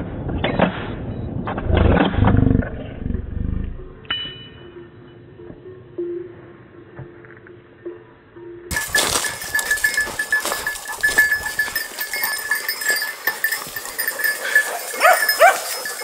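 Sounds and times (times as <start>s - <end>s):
dogs yelping: 8.7s - 16.0s
footsteps through brush: 8.7s - 16.0s
small bells jingling: 8.7s - 16.0s.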